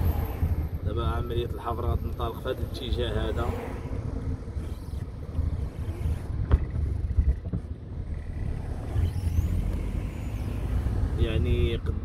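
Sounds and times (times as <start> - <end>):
wind on microphone: 0.0 - 1.2
traffic rumble: 0.0 - 12.0.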